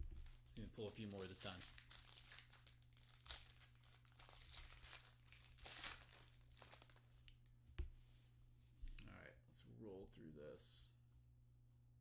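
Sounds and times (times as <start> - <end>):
plastic wrapper crinkling and tearing: 0.0 - 7.1
faint low hum: 0.0 - 12.0.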